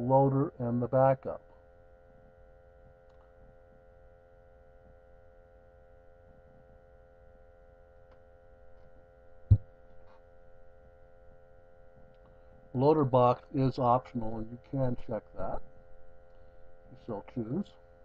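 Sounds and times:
low electrical hum: 0.0 - 18.0
short thump: 9.5 - 9.7.

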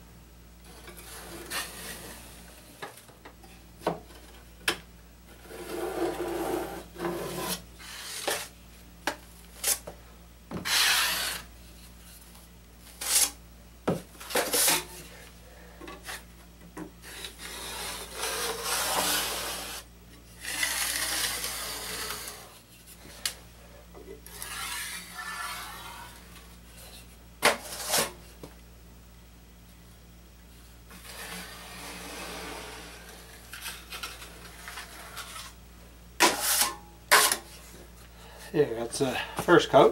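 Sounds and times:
drywall knife scraping compound: 0.7 - 2.5, 5.4 - 8.5, 10.6 - 11.5, 12.9 - 13.4, 14.3 - 15.0, 17.0 - 22.6, 24.2 - 26.4, 27.4 - 28.2, 30.9 - 35.6, 36.2 - 37.6.

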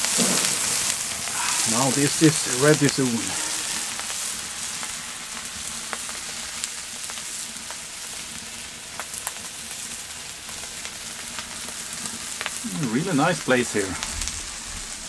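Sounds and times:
fire pops and crackles: 0.0 - 15.0
food sizzling in a pan: 0.0 - 15.0.

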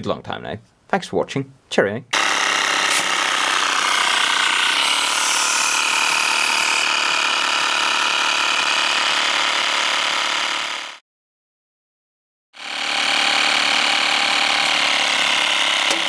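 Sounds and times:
air compressor running: 2.2 - 11.0, 12.6 - 16.0.

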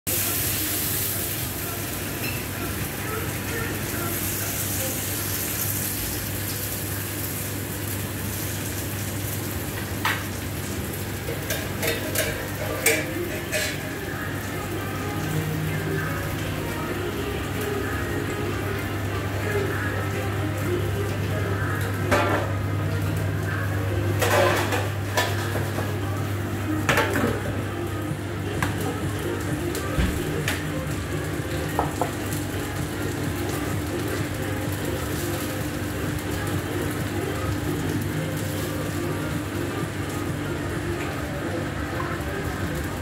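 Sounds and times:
meat sizzling on a griddle: 0.1 - 18.8, 28.9 - 40.8
metal basket and pans clanking: 11.2 - 14.0, 24.2 - 26.0.

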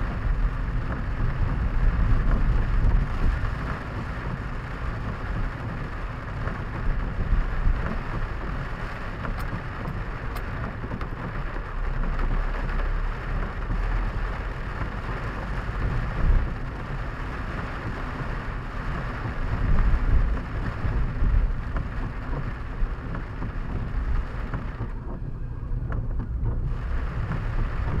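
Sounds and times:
low rumble of car driving: 0.0 - 28.0
rain pattering on car roof: 0.0 - 28.0.

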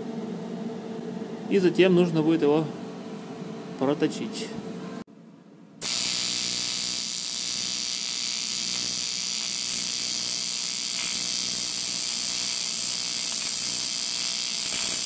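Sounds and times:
welding arc: 5.8 - 15.0.

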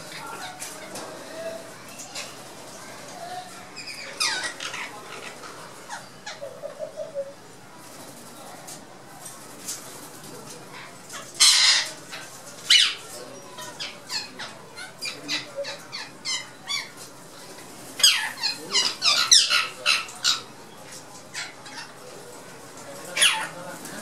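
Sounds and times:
parakeets squawking: 0.0 - 2.4, 3.2 - 7.1, 10.8 - 22.2, 23.0 - 24.0.

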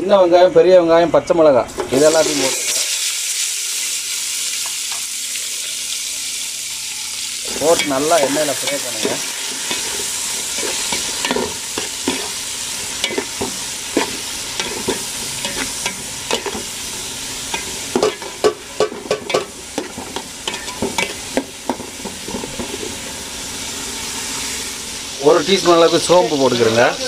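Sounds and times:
food sizzling in hot oil: 1.7 - 27.0
spoon scraping and knocking pot: 17.5 - 23.0.

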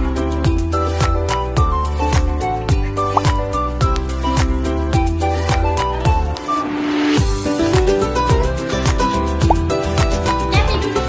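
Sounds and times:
music with drum beat: 7.1 - 10.9.

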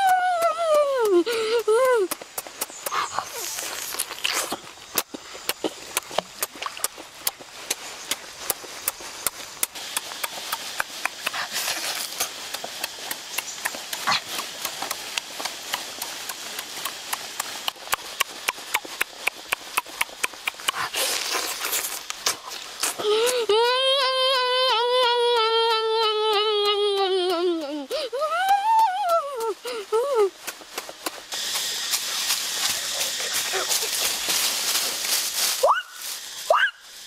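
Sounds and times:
wet chewing and lip-smacking: 0.0 - 23.4, 30.4 - 34.5.

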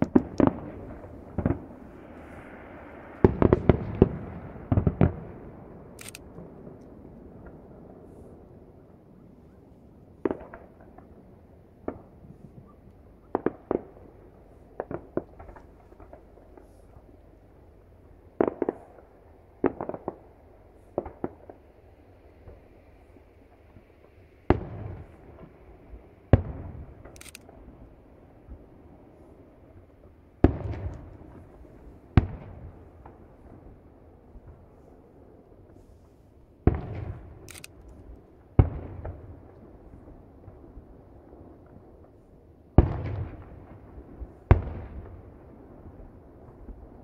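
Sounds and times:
distant firework bangs: 0.0 - 17.4, 18.4 - 29.3, 30.4 - 47.0.

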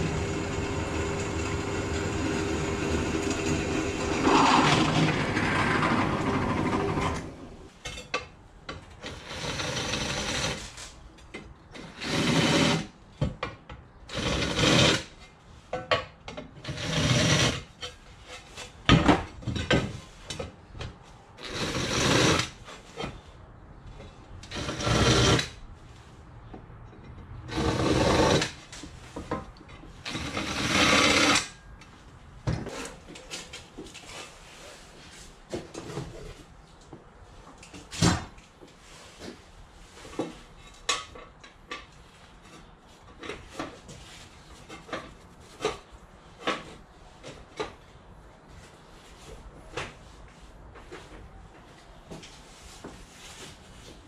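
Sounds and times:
drill press cutting metal: 0.0 - 7.2.

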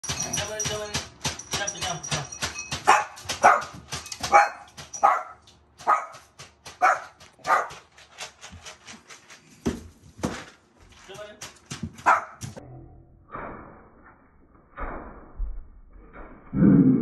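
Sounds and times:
dogs barking sharply: 2.7 - 8.4, 12.0 - 12.6.

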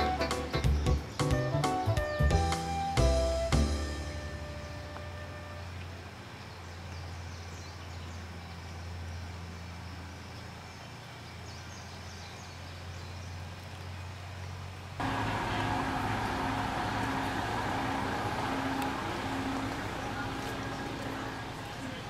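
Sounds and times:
low hum: 15.0 - 22.0.

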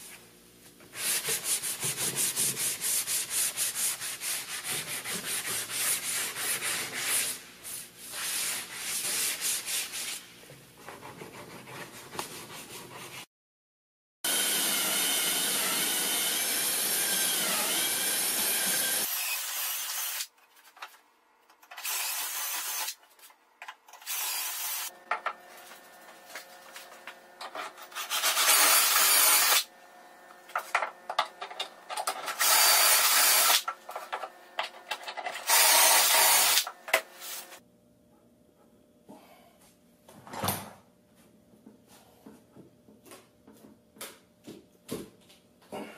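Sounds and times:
cordless drill drilling into wood: 14.3 - 20.2, 28.4 - 29.6, 32.4 - 33.6, 35.4 - 36.7.

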